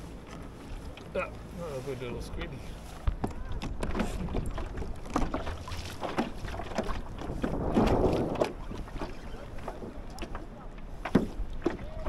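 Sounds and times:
wash of water: 0.0 - 10.4
water lapping against kayak hull: 0.0 - 12.0
wind on microphone: 2.3 - 10.3
small knocks: 10.1 - 11.9.

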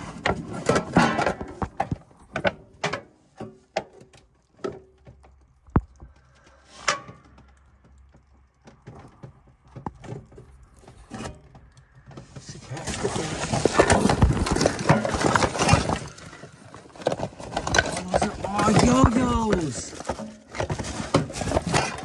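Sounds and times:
objects being handled clattering: 0.0 - 22.0.

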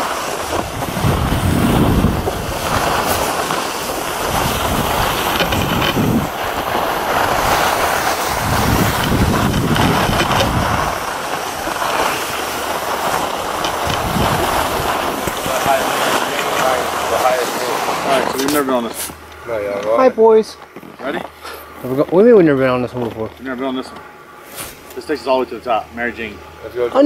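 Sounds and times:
wind buffeting microphone: 0.0 - 18.0
skis sliding on snow: 0.0 - 20.2.

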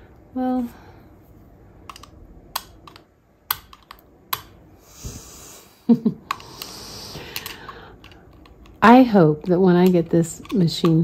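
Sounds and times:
screwdriver tapping metal parts: 1.9 - 4.5, 7.3 - 11.0.

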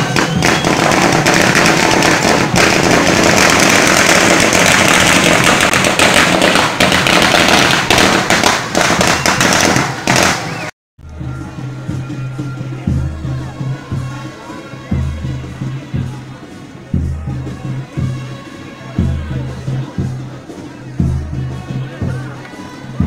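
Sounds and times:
firecrackers crackling: 0.0 - 10.7.

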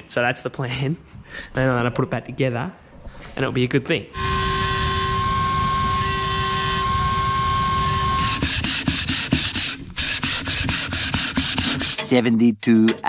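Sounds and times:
die grinder whining: 4.2 - 12.0
metal scraping on honing stone: 10.6 - 12.2.

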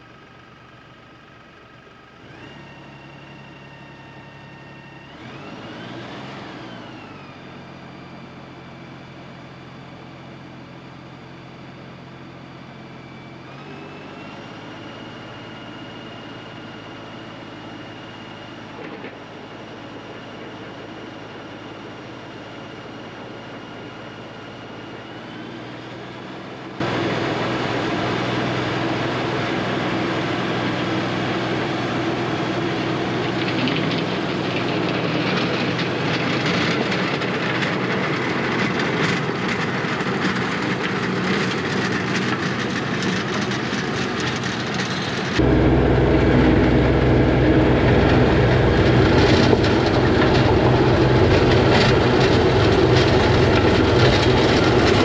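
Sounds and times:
tractor engine under load: 13.5 - 55.0
rotary tiller churning soil: 26.8 - 55.0.

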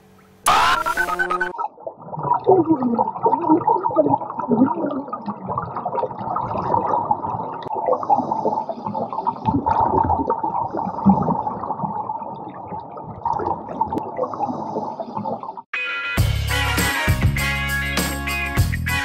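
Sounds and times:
underwater regulator bubbling: 0.5 - 15.5.

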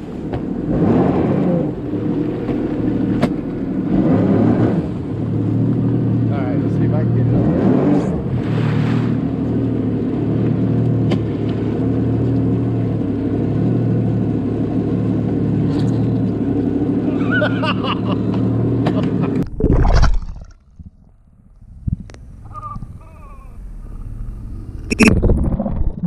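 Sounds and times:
jet ski engine running: 0.0 - 19.4
water churning: 7.2 - 26.0.

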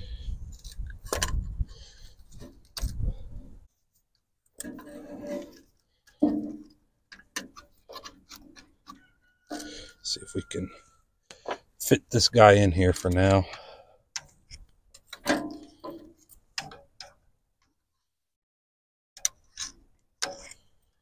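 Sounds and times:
clicks and scrapes of engine parts: 0.4 - 10.1, 13.0 - 17.2, 19.2 - 21.0.

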